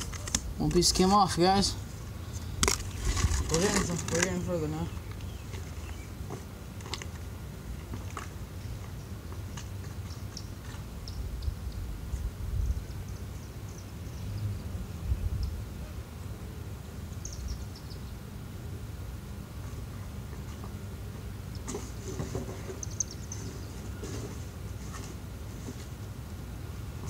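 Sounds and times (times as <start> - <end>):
small birds chirping: 0.7 - 6.4, 8.5 - 12.0, 12.8 - 15.7, 17.1 - 18.3, 22.5 - 24.5.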